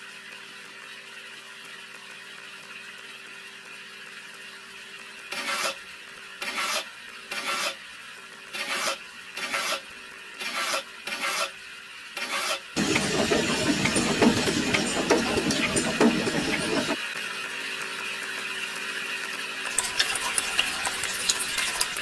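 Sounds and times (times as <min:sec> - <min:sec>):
wire tool scraping wet cement: 0:05.3 - 0:05.8, 0:06.4 - 0:07.8, 0:08.5 - 0:11.6, 0:12.2 - 0:12.6.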